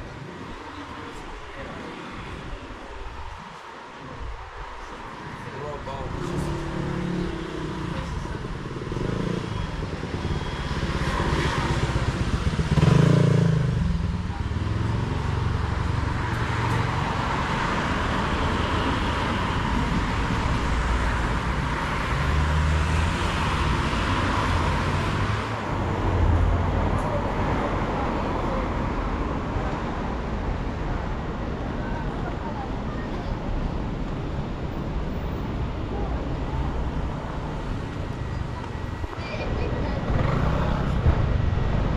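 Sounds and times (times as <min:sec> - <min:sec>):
vehicles passing: 0:00.0 - 0:41.9.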